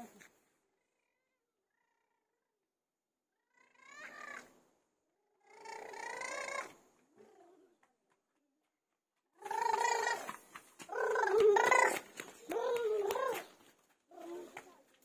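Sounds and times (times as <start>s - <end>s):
child's high wordless calls: 5.5s - 6.7s, 9.4s - 10.3s, 10.9s - 13.5s.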